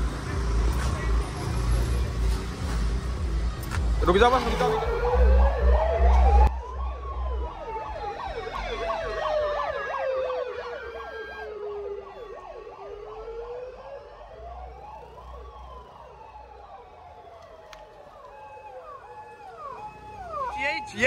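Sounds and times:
electronic siren wailing: 4.3 - 21.0
fast siren yelp: 4.5 - 21.0.

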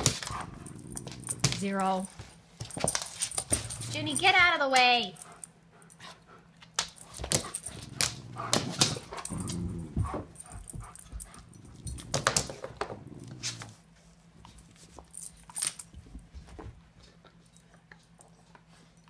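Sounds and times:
dogs scuffling on floor: 6.8 - 17.4.

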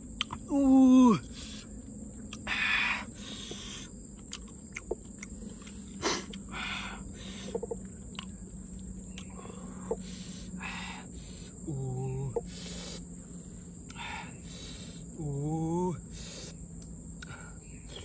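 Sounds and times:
person humming mm: 0.5 - 1.3, 11.6 - 12.6.

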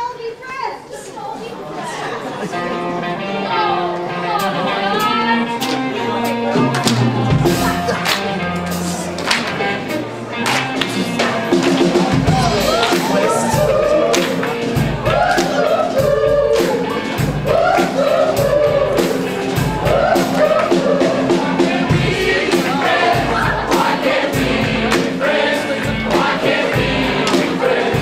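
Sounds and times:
upbeat music with group singing: 3.6 - 10.0, 10.6 - 28.0.

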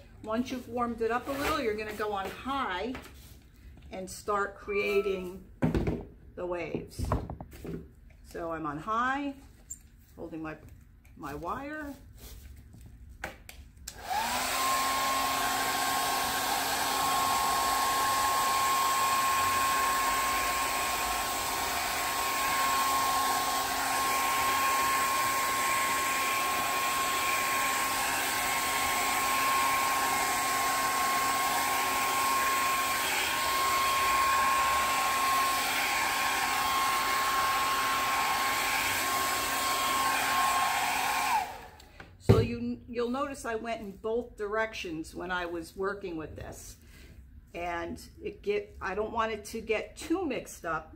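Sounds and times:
hair dryer running: 13.9 - 42.5.

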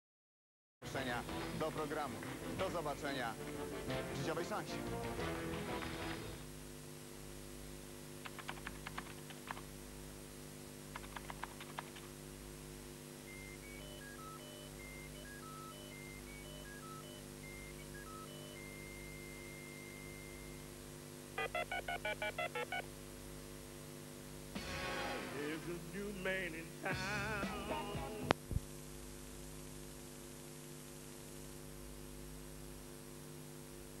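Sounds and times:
faint tape hiss: 0.8 - 34.0
mains hum: 0.8 - 34.0
keyboard typing clicks: 8.2 - 9.7, 10.9 - 12.1
short electronic beeps: 13.3 - 20.5.

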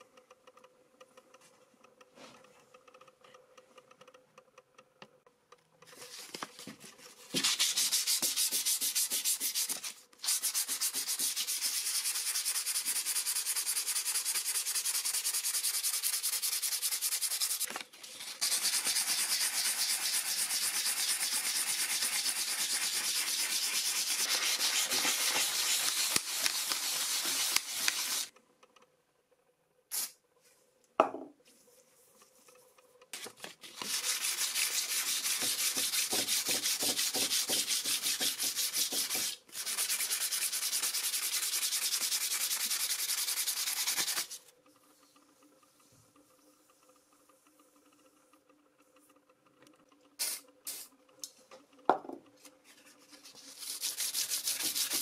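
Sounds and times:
sanding strokes: 7.4 - 28.3, 33.6 - 44.4, 53.1 - 55.0.

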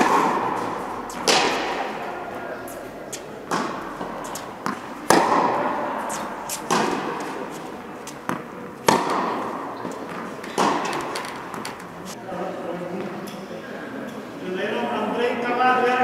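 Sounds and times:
racket striking tennis ball: 0.0 - 11.9
tennis ball bouncing: 0.0 - 11.9.

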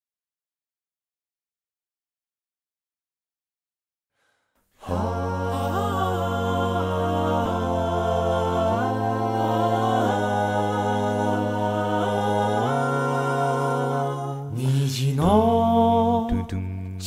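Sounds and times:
male a cappella group singing: 4.8 - 17.0.

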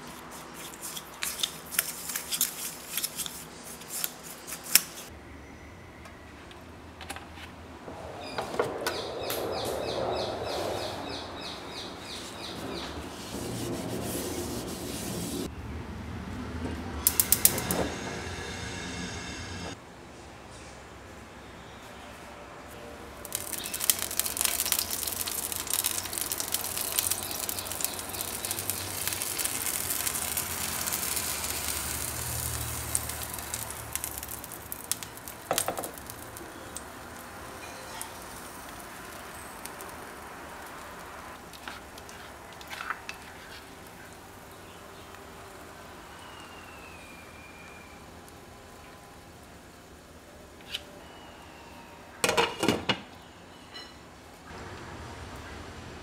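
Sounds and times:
batter sizzling in a frying pan: 23.2 - 49.6.

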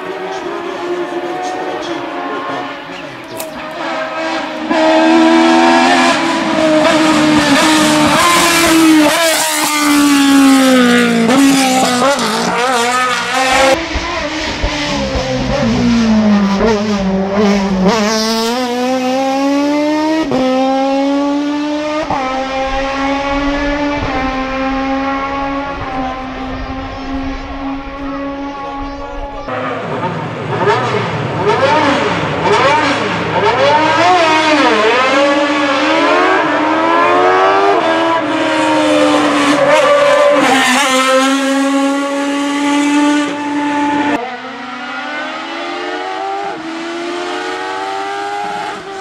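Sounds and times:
race car engine revving high: 0.0 - 49.0.

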